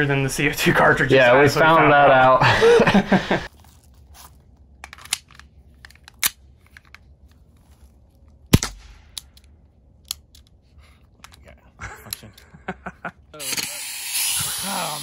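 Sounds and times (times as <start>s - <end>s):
airsoft pistol shot: 8.5s - 9.2s
airsoft pistol mechanical clicks: 9.0s - 10.6s.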